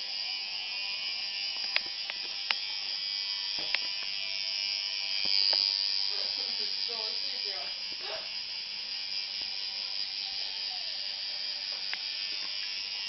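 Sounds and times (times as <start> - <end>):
tattoo machine buzzing: 0.0 - 13.0
sharp clicks: 1.5 - 2.7.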